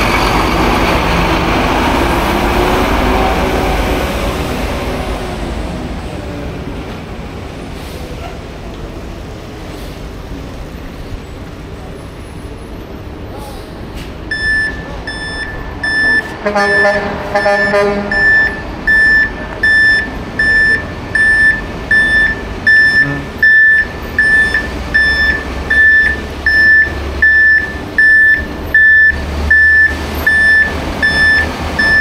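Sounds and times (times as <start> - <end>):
diesel engine rumble: 0.0 - 32.0
truck reverse alarm beeping: 14.3 - 32.0
short horn blare: 16.2 - 18.6, 22.8 - 23.6.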